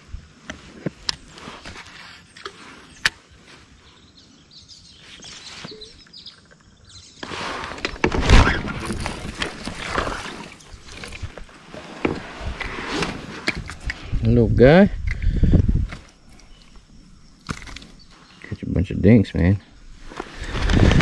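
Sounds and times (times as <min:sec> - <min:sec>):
water splashing: 0:08.5 - 0:12.1.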